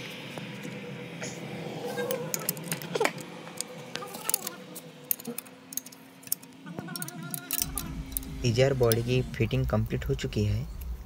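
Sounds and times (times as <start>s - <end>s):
low steady hum: 0.0s - 11.0s
spanner clicking on bolts: 5.1s - 9.1s.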